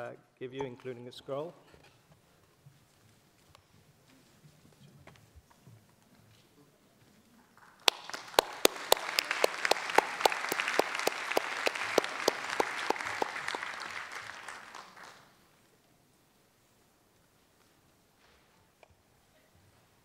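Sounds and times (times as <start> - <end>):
sharp nearby clapping: 7.6 - 15.3
audience applauding: 7.6 - 15.4.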